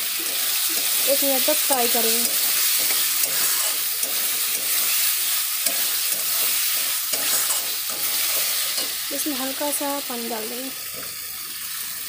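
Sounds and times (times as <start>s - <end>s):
potatoes sizzling in pan: 0.0s - 12.0s
metal spatula scraping pan: 0.3s - 9.1s.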